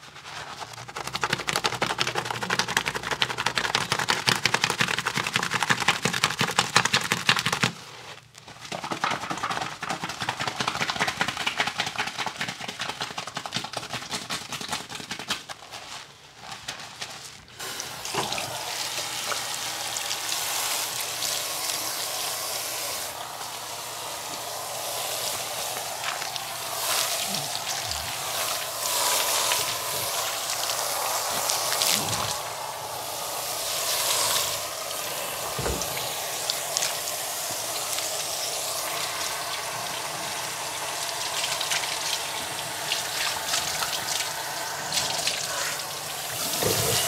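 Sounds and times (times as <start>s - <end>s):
hair lather squelching: 17.6s - 47.0s
shower sprayer water rushing: 17.6s - 47.0s.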